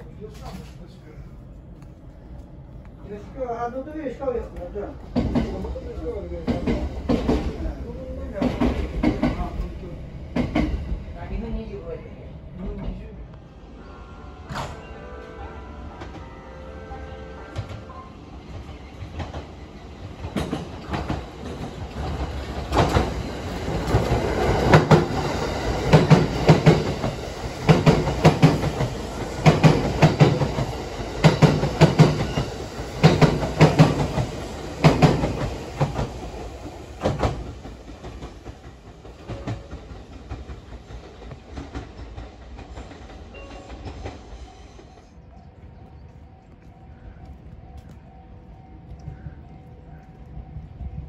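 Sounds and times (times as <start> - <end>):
train wheels clicking over rail joints: 4.5 - 5.7, 6.4 - 7.6, 8.2 - 9.7, 10.3 - 11.0, 17.5 - 45.3.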